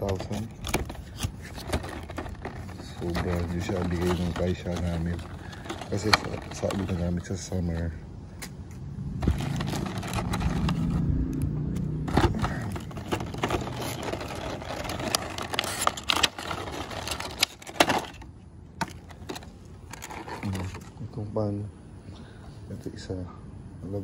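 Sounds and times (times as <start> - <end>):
plastic and cardboard rustling: 0.0 - 7.9, 9.2 - 11.1, 12.0 - 21.0
low rumble: 8.8 - 15.2.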